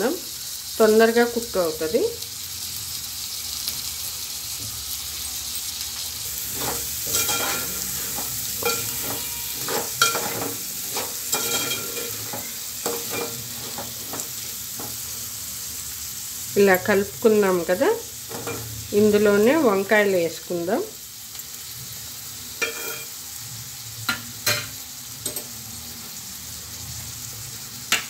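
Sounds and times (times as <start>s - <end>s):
food sizzling in hot oil: 0.0s - 28.0s
metal spoon scraping a pan: 5.4s - 15.2s, 18.3s - 18.8s, 22.6s - 23.2s.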